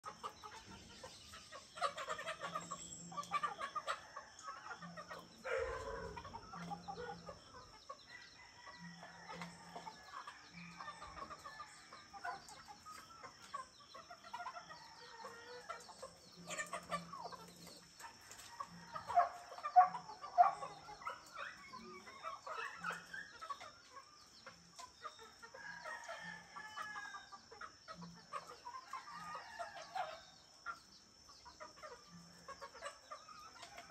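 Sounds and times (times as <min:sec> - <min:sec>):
bird calls: 0:00.0 - 0:33.9
chickens clucking: 0:00.0 - 0:33.9
roosters crowing: 0:01.1 - 0:13.4, 0:14.6 - 0:23.9, 0:25.5 - 0:30.5.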